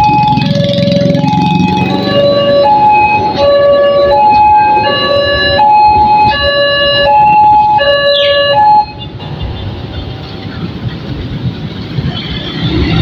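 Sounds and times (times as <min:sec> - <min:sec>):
two-tone crossing alarm: 0:00.0 - 0:09.1
train coaches rumbling: 0:09.0 - 0:13.0.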